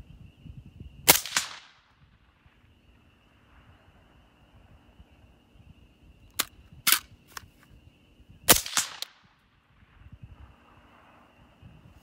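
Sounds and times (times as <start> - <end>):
suppressed rifle shots: 1.1 - 2.0, 8.5 - 9.3.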